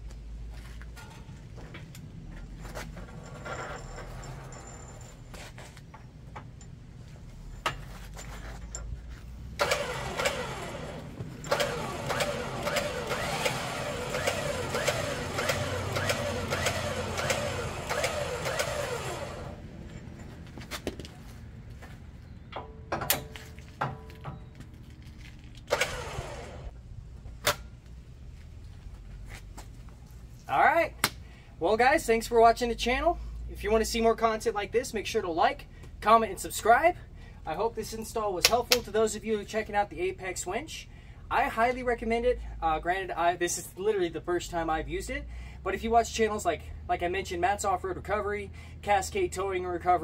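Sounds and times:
winch clicks: 9.6 - 19.5
electric winch running: 9.6 - 19.6, 25.7 - 26.7.

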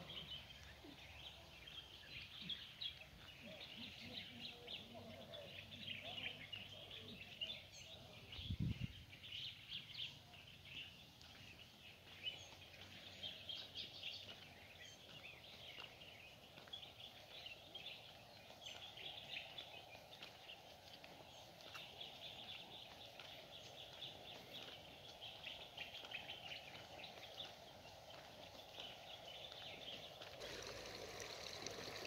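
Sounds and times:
small birds chirping: 0.0 - 32.0.

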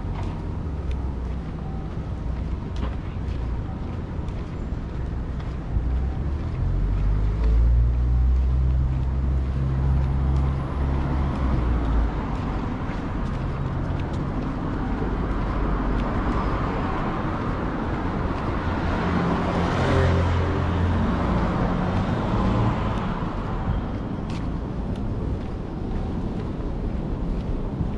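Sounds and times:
vehicle engine rumble: 0.0 - 27.9
vehicle passing: 5.4 - 25.8.

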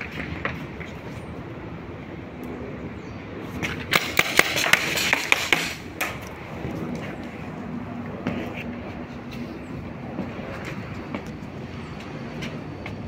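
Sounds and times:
paintball guns firing: 3.9 - 6.2.

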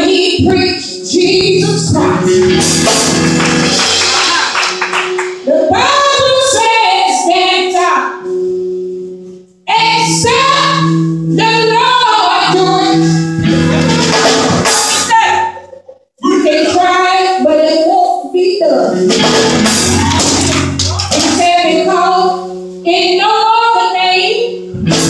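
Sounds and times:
woman singing gospel: 0.0 - 2.4, 16.2 - 18.9, 21.2 - 24.6
held backing chords: 0.0 - 25.0.

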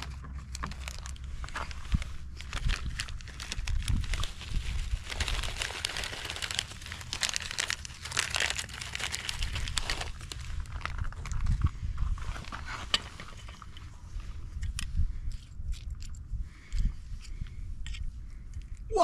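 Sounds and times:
plastic packet crinkling: 0.0 - 11.7.

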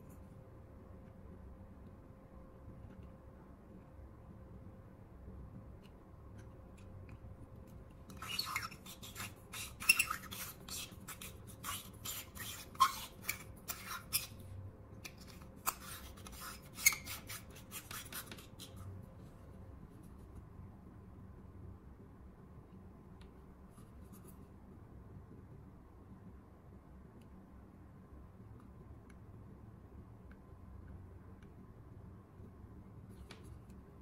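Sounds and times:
metal tweezers scraping: 8.1 - 14.4.

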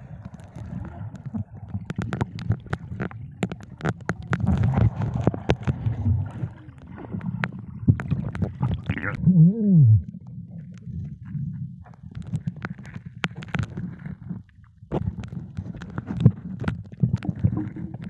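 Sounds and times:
sharp clicks and crackles: 0.0 - 9.2, 10.0 - 18.0
underwater rumble of moving water: 0.0 - 18.0
muffled wavering voice-like hum: 8.8 - 10.2.

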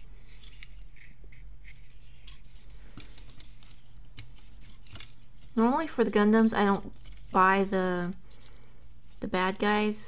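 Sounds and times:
plastic parts clicking and rubbing: 0.2 - 5.6, 6.8 - 7.4.

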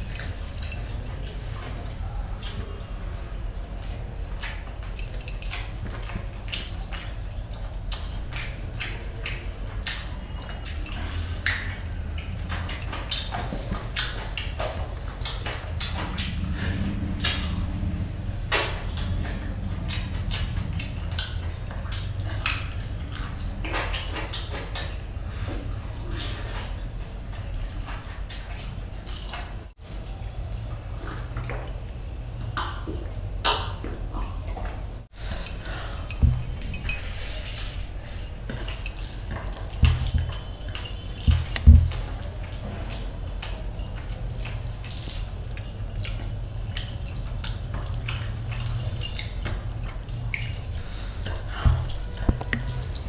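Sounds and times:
metal bracelets jangling: 0.0 - 1.8, 3.8 - 9.4, 10.4 - 25.6, 35.1 - 53.0
chewing: 0.0 - 32.6, 34.1 - 53.0
low steady hum: 34.8 - 53.0.

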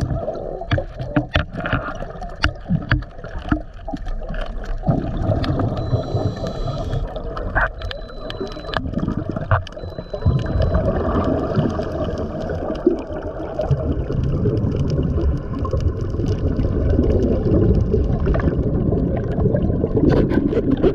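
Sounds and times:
sharp underwater clicks: 0.0 - 18.6
underwater gurgling rush: 0.0 - 20.9.

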